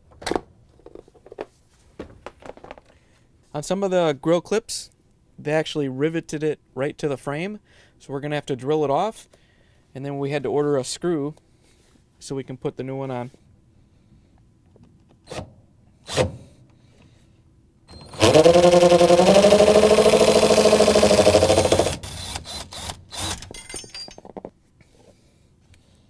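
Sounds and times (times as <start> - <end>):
cordless drill drilling: 17.9 - 23.5.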